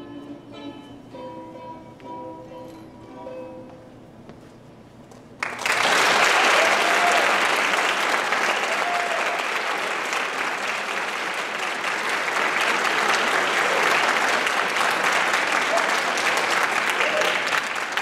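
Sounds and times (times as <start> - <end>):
audience applause: 5.4 - 18.0.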